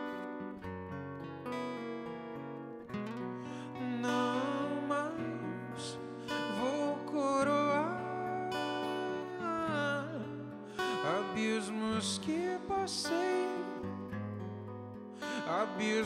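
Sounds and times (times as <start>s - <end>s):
acoustic guitar picked and strummed: 0.0s - 16.0s
man singing: 3.6s - 14.1s, 15.2s - 16.0s.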